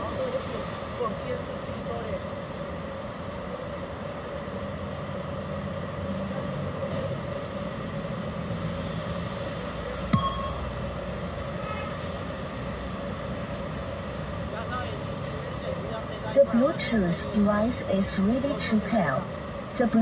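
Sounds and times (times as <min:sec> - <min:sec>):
distant traffic rumble: 0:00.0 - 0:20.0.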